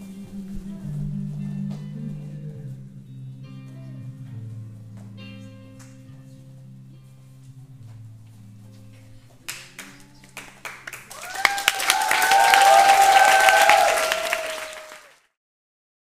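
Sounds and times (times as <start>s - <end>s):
music: 0.0s - 15.0s
audience applause: 9.5s - 15.4s
audience cheering: 10.9s - 15.3s.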